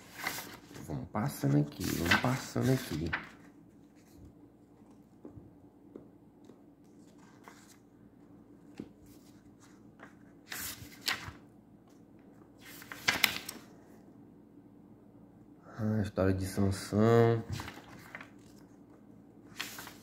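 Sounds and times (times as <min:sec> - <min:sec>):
book pages turning: 0:00.0 - 0:05.2, 0:06.4 - 0:07.9, 0:08.6 - 0:11.5, 0:12.4 - 0:13.7, 0:17.4 - 0:20.0.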